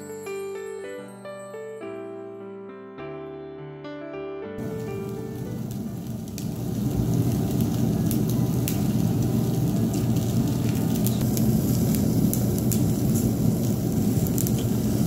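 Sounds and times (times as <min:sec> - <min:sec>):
beef sizzling on a grill: 0:04.6 - 0:15.0
low rush of flame: 0:04.6 - 0:15.0
oil crackling on coals: 0:04.6 - 0:15.0.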